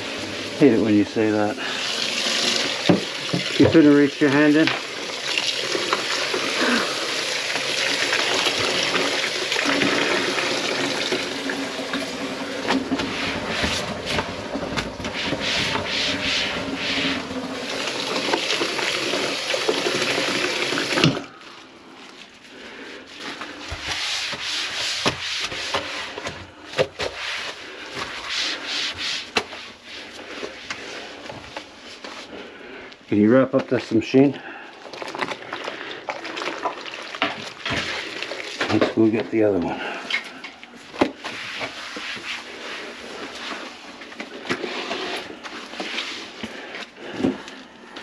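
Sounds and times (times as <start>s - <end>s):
drain-cleaning machine humming: 0.0s - 21.6s
cable rubbing in drain line: 8.0s - 21.3s, 41.2s - 47.5s.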